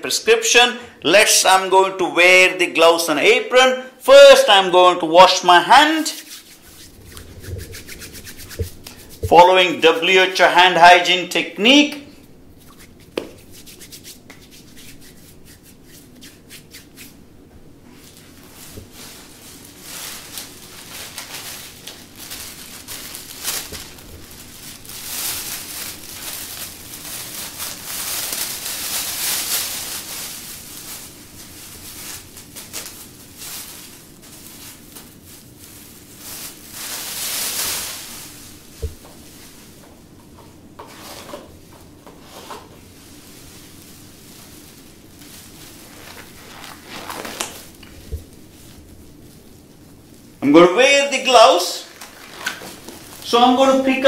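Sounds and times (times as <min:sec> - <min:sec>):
plastic apron rustling and crinkling: 0:05.3 - 0:11.1, 0:12.0 - 0:54.0
hands rubbing together: 0:06.0 - 0:09.4, 0:12.6 - 0:17.2.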